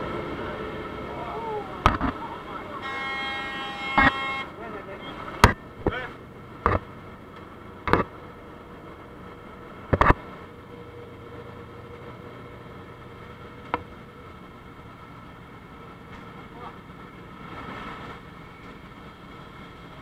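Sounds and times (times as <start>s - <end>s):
muffled aircraft cabin noise: 0.6s - 10.6s.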